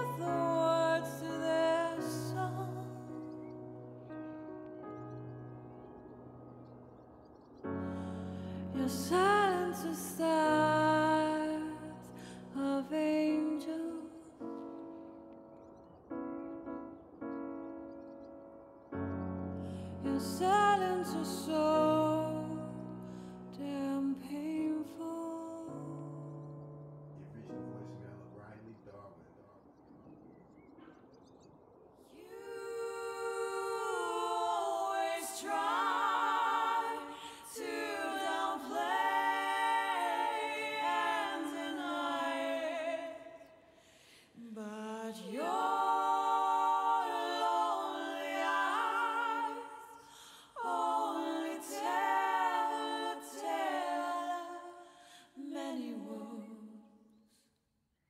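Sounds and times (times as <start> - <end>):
a cappella vocal harmonies: 0.0 - 3.8, 7.6 - 15.4, 19.5 - 26.6, 32.1 - 57.4.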